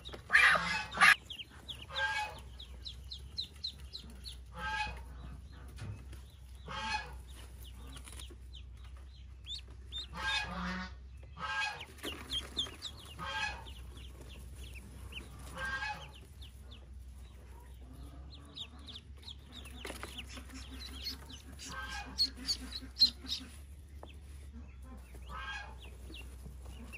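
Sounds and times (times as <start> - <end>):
ducklings peeping: 0.0 - 26.9
adult duck calling: 0.3 - 2.7, 9.9 - 11.8, 20.2 - 23.6.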